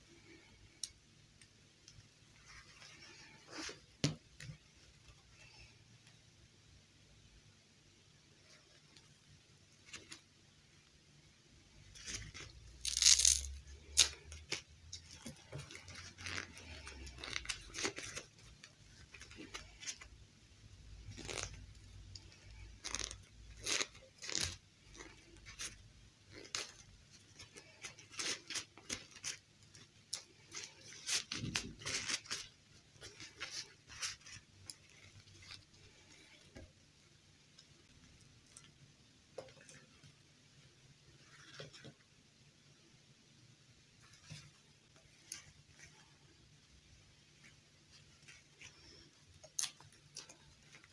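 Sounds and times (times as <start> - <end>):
fabric rustling and crinkling: 11.8 - 20.2, 20.9 - 36.8, 47.1 - 50.9.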